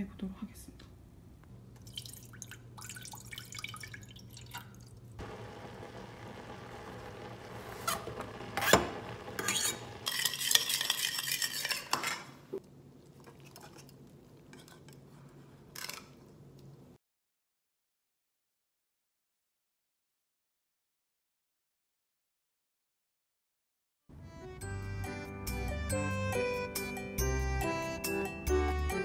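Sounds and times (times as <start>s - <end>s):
water poured into saucepan: 1.8s - 5.1s
water boiling in pot: 1.8s - 11.6s
knife scraping cutting board: 7.7s - 12.4s.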